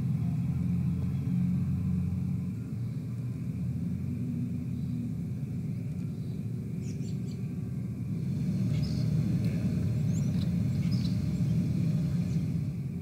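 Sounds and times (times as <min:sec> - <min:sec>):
steady low rumble: 0:00.0 - 0:13.0
birds chirping: 0:04.6 - 0:13.0.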